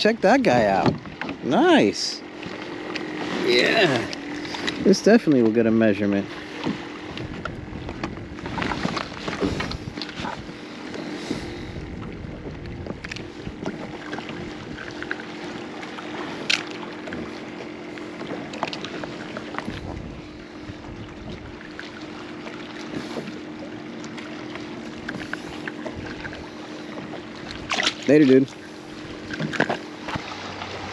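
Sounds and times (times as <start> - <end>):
steady low hum: 0.0 - 30.9
water sloshing against kayak: 0.0 - 30.9
wind on microphone: 7.0 - 15.0, 19.6 - 21.6.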